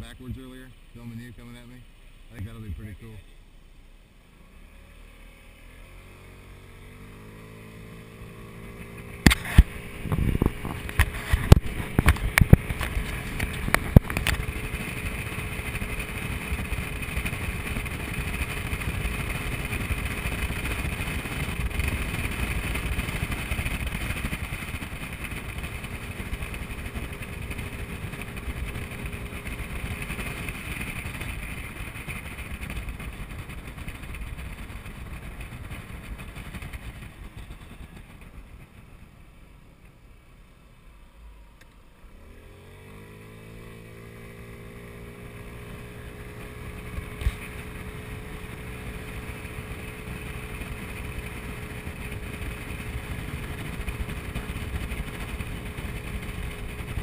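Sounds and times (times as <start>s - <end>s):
scooter engine revving: 4.3s - 38.8s, 42.1s - 57.0s
wind noise: 8.8s - 39.1s.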